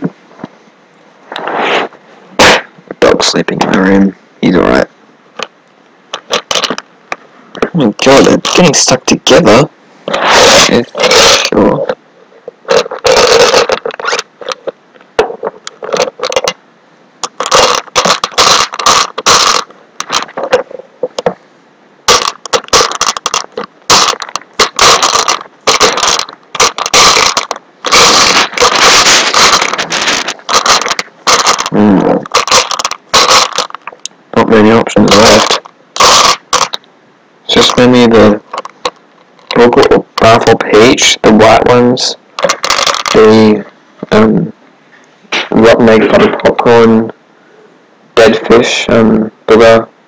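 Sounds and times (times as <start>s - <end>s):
jelly beans rattling in box: 6.2s - 6.8s, 10.4s - 11.8s, 12.6s - 14.7s, 17.2s - 20.4s, 22.1s - 34.0s, 35.0s - 36.8s, 37.5s - 39.7s, 42.4s - 43.4s.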